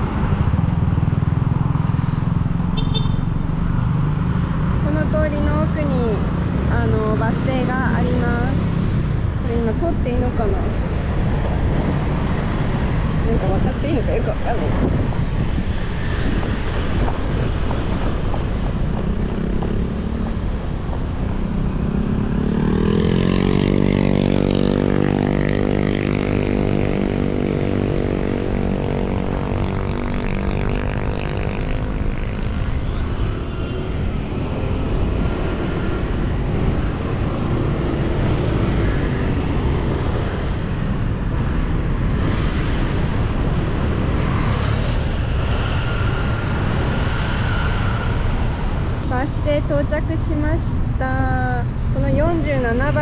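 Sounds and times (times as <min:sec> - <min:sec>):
road traffic rumble and hiss: 0:00.0 - 0:53.0
vehicle engine passing close: 0:18.7 - 0:27.3.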